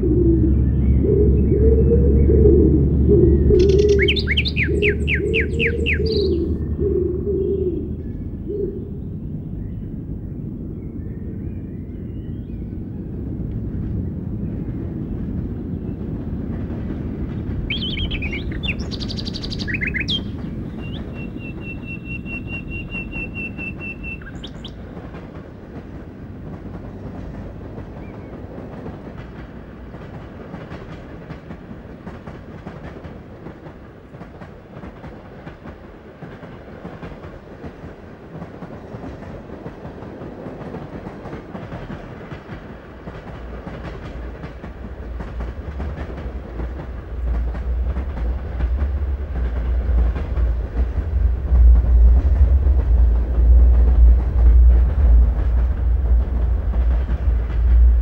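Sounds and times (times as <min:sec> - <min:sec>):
steady low rumble: 0:00.0 - 0:25.2, 0:45.0 - 0:58.0
high bird-like chirps: 0:03.4 - 0:06.5, 0:17.7 - 0:24.8.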